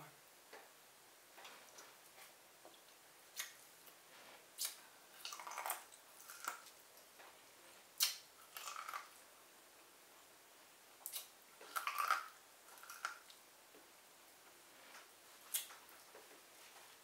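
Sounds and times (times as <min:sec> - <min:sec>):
crunching corn on the cob: 0:08.0 - 0:09.1
mouth smacks: 0:08.0 - 0:09.1.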